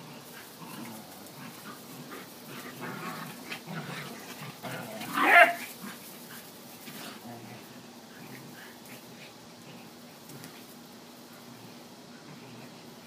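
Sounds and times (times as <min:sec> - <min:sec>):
dogs scuffling and grumbling: 0:00.0 - 0:13.0.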